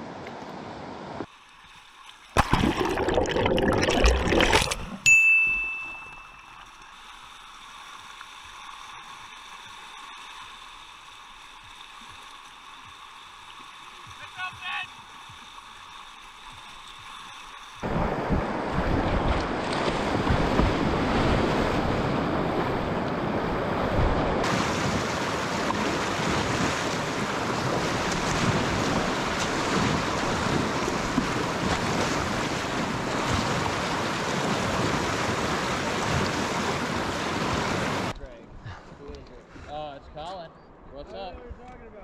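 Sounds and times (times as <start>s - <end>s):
rushing river water: 0.0s - 38.2s
wind noise on microphone: 17.8s - 25.0s.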